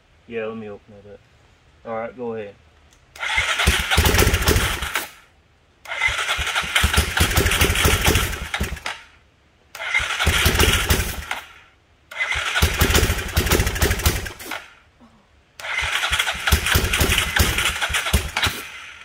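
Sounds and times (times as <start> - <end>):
engine cranked by electric starter: 3.1 - 14.8, 15.6 - 19.0.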